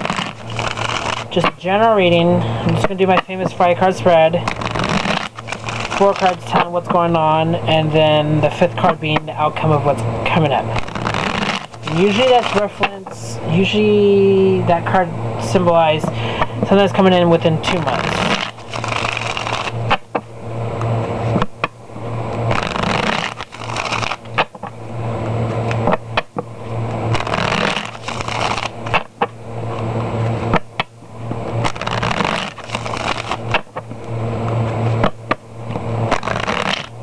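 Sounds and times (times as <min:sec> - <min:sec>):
cards shuffling with click: 0:00.0 - 0:01.6, 0:02.7 - 0:07.0, 0:10.7 - 0:13.2, 0:17.7 - 0:20.2, 0:22.4 - 0:24.8, 0:25.5 - 0:26.4, 0:27.1 - 0:30.9, 0:31.6 - 0:36.9.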